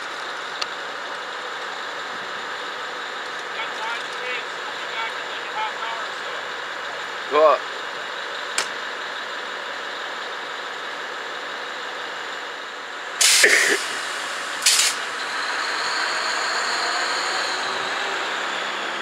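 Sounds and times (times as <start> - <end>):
diesel locomotive idling: 0.0 - 19.0
air brake hisses: 13.2 - 15.2.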